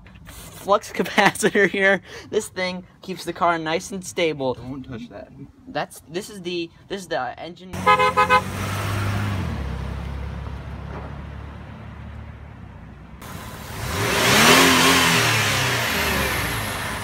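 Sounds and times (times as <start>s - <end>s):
truck driving past: 7.8s - 17.0s
truck engine humming: 7.8s - 17.0s.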